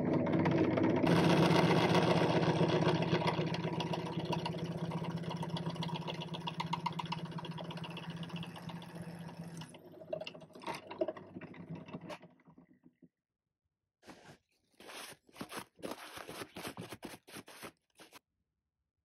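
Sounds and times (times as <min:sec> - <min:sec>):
drill press boring metal: 0:01.0 - 0:05.6.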